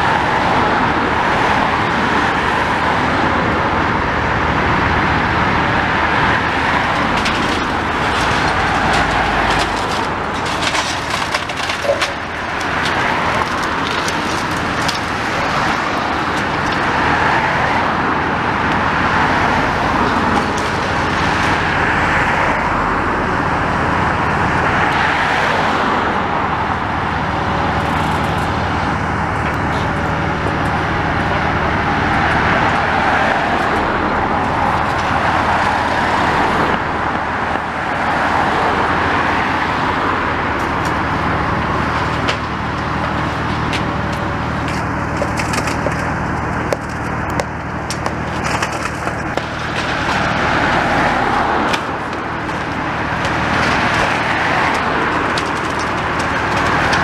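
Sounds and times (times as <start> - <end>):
excavator working: 0.0 - 57.0
road traffic passing: 0.0 - 57.0
sharp knocks and crunches: 6.4 - 17.1, 42.0 - 57.0.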